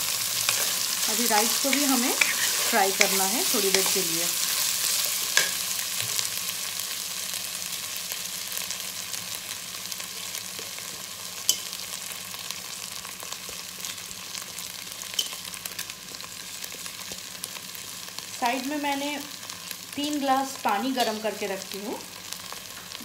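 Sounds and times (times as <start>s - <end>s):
rice sizzling in hot oil: 0.0s - 23.0s.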